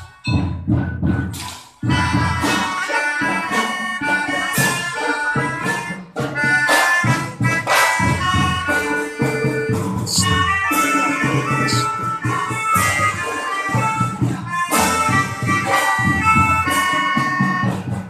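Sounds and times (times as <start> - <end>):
melodicas playing a tune: 1.8 - 17.7
steady low drum beat: 4.0 - 18.0.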